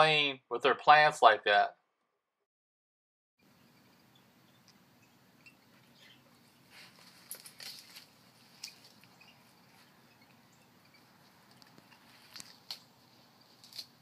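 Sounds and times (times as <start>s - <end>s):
dog chewing leaves: 6.4s - 14.0s.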